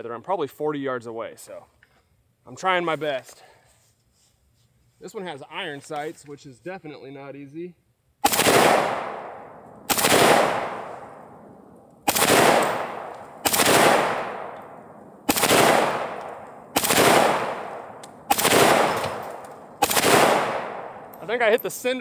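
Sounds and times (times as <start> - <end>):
rifle single shots: 8.2 - 21.4.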